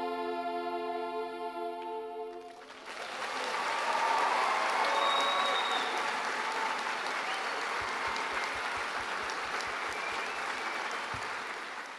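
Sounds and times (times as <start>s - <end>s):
audience applauding: 2.3s - 11.9s.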